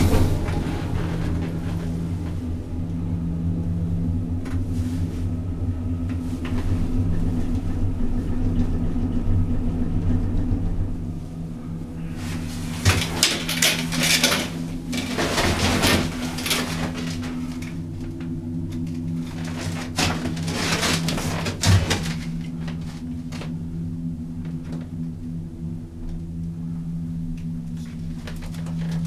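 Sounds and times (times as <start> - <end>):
gondola cabin hum: 0.0 - 29.0
cabin rattling and knocking: 12.7 - 18.0, 19.0 - 23.5.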